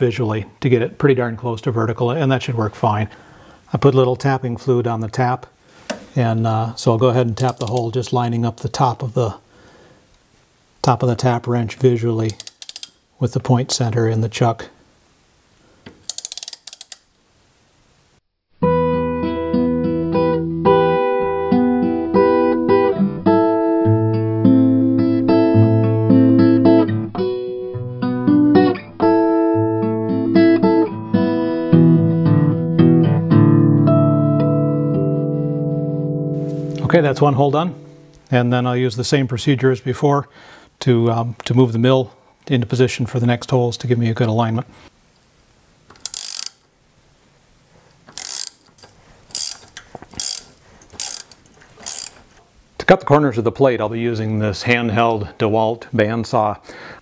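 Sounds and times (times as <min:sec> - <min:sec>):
ratchet wrench pawl clicking: 0:07.4 - 0:07.8, 0:12.3 - 0:13.0, 0:16.0 - 0:17.1, 0:46.0 - 0:46.6, 0:48.1 - 0:52.2
acoustic guitar piece: 0:18.6 - 0:38.2.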